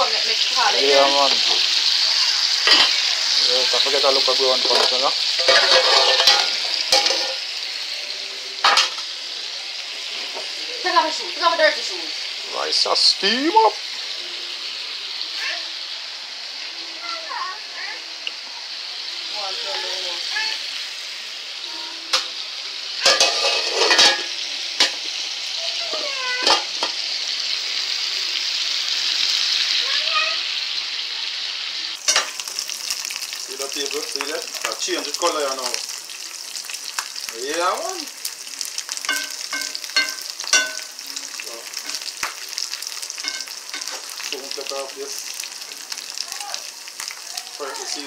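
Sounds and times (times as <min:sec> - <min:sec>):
chicken sizzling in oil: 0:00.0 - 0:48.0
utensil clinking and scraping pan: 0:04.7 - 0:07.4, 0:23.0 - 0:25.0, 0:39.0 - 0:40.9, 0:43.2 - 0:44.0.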